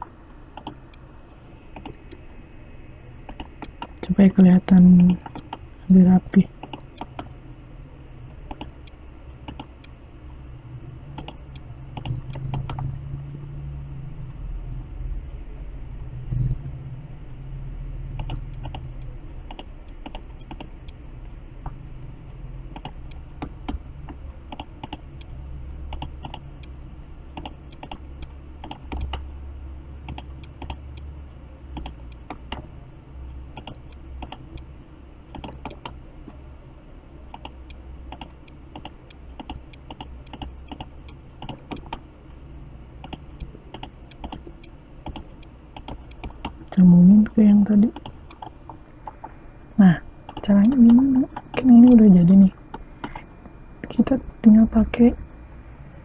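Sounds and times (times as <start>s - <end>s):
low steady hum: 0.0s - 56.0s
mouse and keyboard clicks: 0.6s - 1.0s, 1.8s - 2.2s, 5.0s - 5.6s, 6.6s - 7.3s, 8.5s - 9.9s, 11.2s - 12.8s, 18.2s - 21.0s, 27.4s - 29.2s, 31.8s - 32.6s, 35.3s - 36.0s, 37.3s - 42.0s, 43.0s - 46.6s.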